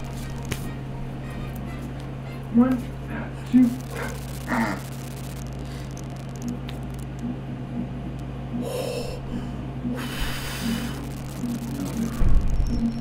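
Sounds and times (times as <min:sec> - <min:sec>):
low hum: 0:03.2 - 0:13.0.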